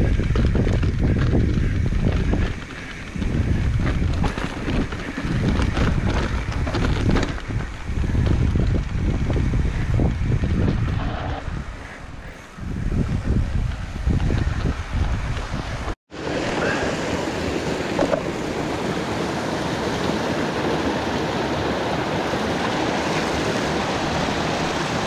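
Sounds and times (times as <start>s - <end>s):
bike tyres rattling on stones: 0.0s - 15.9s
wind buffeting microphone: 0.0s - 25.0s.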